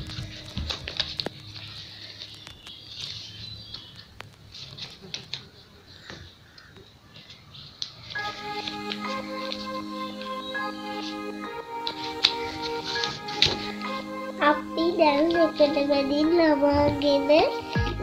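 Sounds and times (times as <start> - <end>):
paper rustling and crinkling: 0.0 - 5.6, 11.9 - 13.7.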